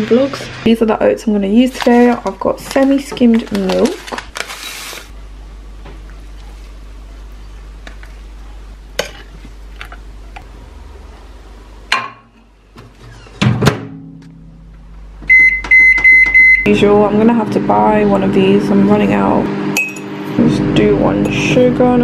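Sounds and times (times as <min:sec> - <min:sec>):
microwave beep: 0:15.2 - 0:16.8.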